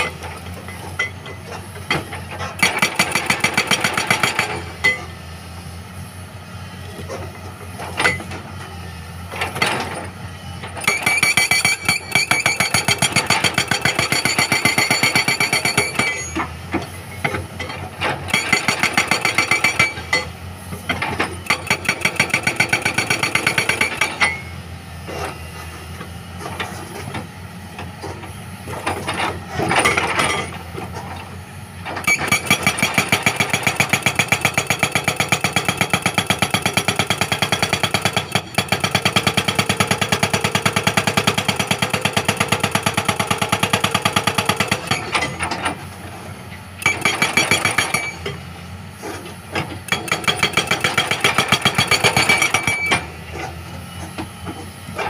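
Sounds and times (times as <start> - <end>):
hydraulic breaker hammering rock: 0.0 - 5.2, 9.3 - 24.5, 27.9 - 53.6.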